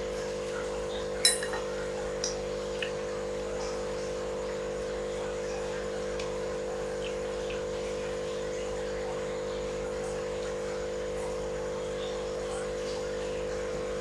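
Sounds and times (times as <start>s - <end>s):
steady multi-tone hum: 0.0s - 14.0s.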